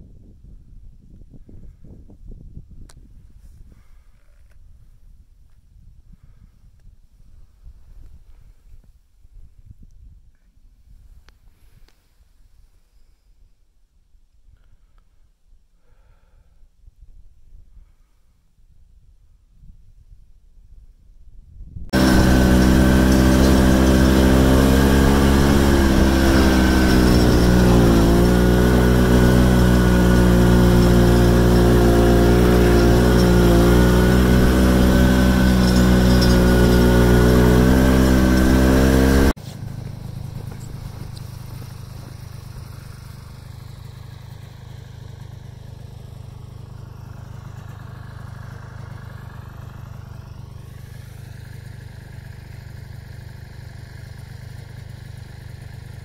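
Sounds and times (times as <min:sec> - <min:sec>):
snowmobile engine running: 0:22.0 - 0:45.7.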